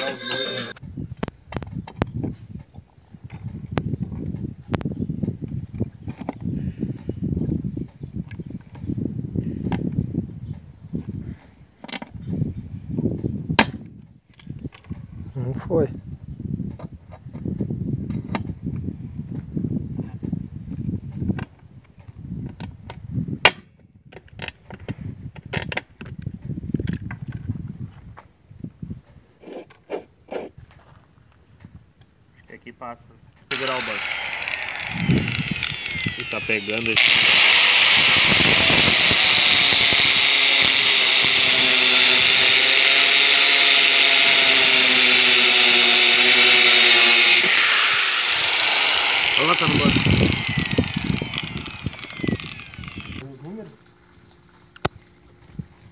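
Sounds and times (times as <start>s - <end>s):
angle grinder grinding steel: 0.0s - 0.8s, 33.5s - 53.2s.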